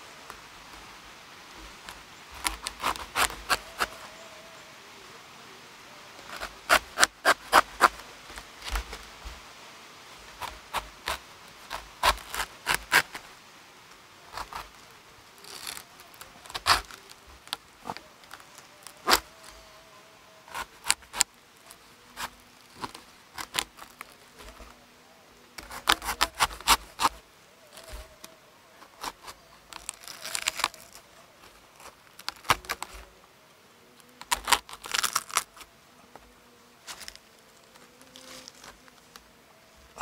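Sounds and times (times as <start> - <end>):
knife cracking spiky fruit husk: 2.3 - 4.0, 6.2 - 8.0, 10.4 - 13.2, 15.4 - 19.3, 20.4 - 21.3, 22.1 - 24.7, 25.6 - 31.1, 31.8 - 33.1, 34.2 - 35.7.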